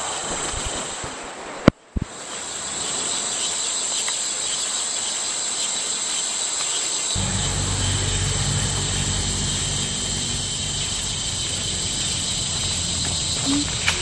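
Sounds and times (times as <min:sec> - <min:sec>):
high-pitched insect chorus: 0:02.1 - 0:14.0
low rumble: 0:07.2 - 0:14.0.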